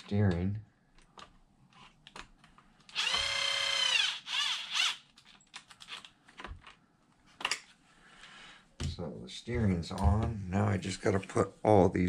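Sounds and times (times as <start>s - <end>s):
cordless power driver whining: 2.9s - 5.0s.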